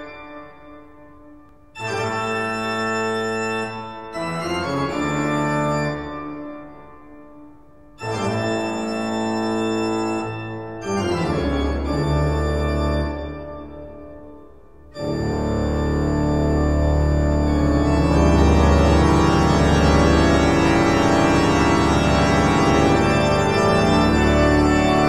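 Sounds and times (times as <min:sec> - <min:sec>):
sustained organ chords: 0:00.0 - 0:25.0.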